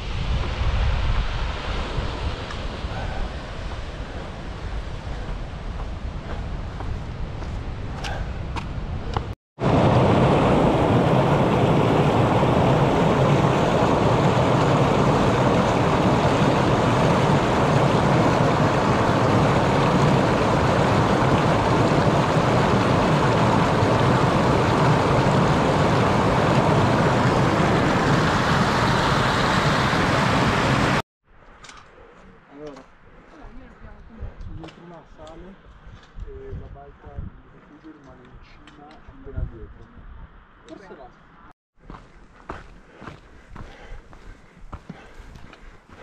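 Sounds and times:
stream rushing over rocks: 0:09.6 - 0:31.0.

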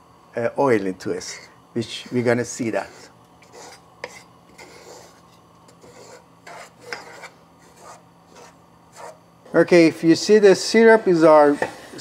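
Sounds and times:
spatula scraping flour in saucepan: 0:01.9 - 0:09.2.

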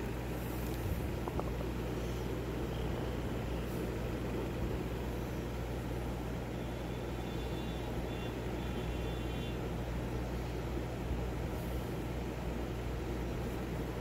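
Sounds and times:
low hum and rumble: 0:00.0 - 0:06.6.

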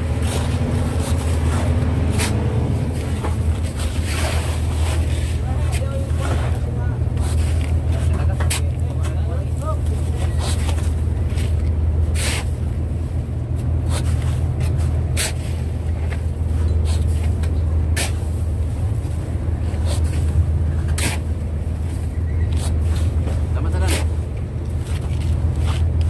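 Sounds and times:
boat engine droning: 0:00.0 - 0:26.0
shovels scraping into crushed ice: 0:00.1 - 0:07.7, 0:09.8 - 0:12.6.

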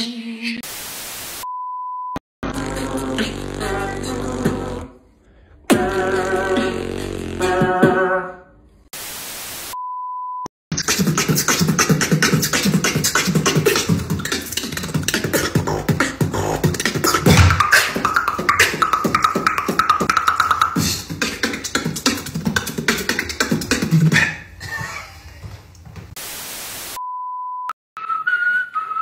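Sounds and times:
beatboxing: 0:02.4 - 0:05.0, 0:05.7 - 0:08.2, 0:10.7 - 0:25.1.

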